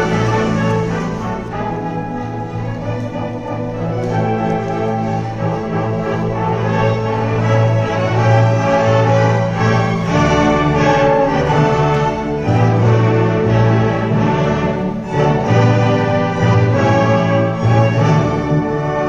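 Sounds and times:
orchestra playing: 0.0 - 19.0.

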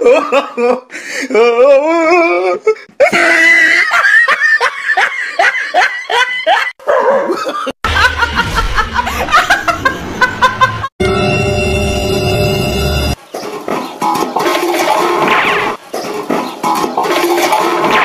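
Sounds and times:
person laughing hard: 0.0 - 10.9.

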